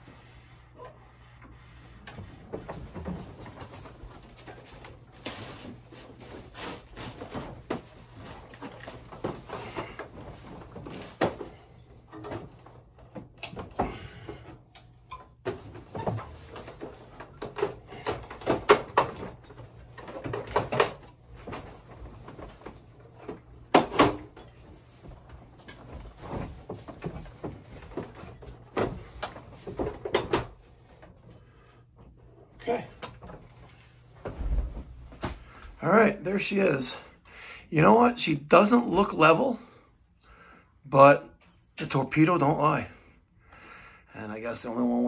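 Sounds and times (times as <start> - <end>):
knocks and clunks of plastic casing: 6.1 - 31.2.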